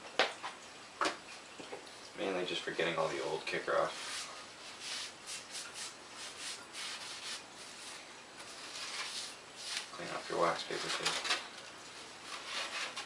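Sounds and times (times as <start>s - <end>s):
tissue wiping foam surface: 3.8s - 10.8s.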